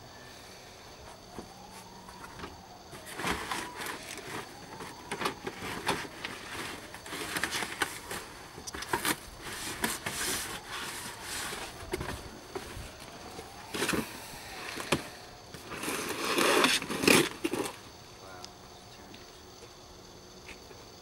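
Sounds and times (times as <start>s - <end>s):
boxes knocking and scraping: 1.1s - 17.9s
crinkly rustling: 1.2s - 17.9s.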